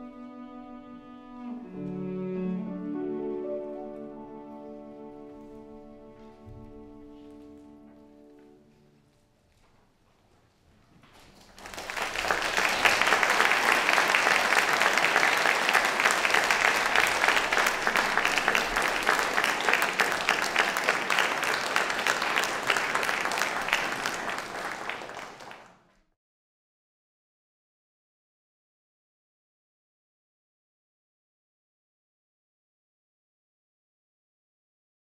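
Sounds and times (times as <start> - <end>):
cello and piano notes: 0.0 - 9.2
audience applause: 11.2 - 25.9.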